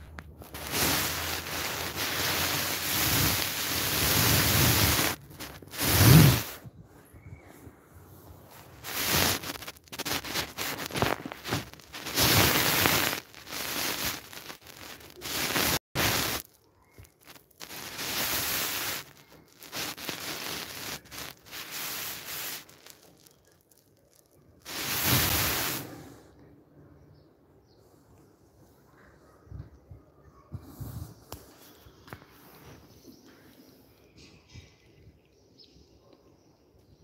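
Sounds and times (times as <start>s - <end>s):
phone microphone rubbing: 0.0s - 6.8s, 8.2s - 16.4s, 17.0s - 23.2s, 24.7s - 26.0s.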